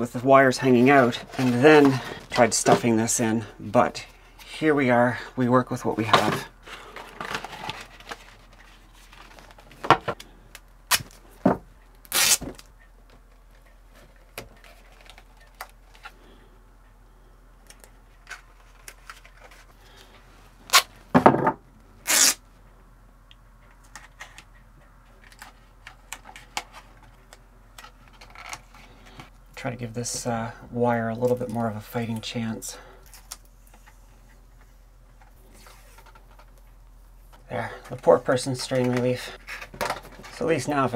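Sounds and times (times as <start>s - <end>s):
short sharp tape rasps: 12.1s - 12.4s, 22.0s - 22.4s.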